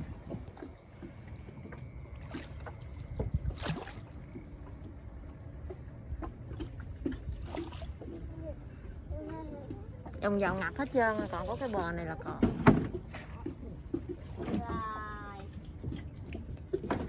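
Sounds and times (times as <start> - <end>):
boat engine rumble: 0.0 - 17.0.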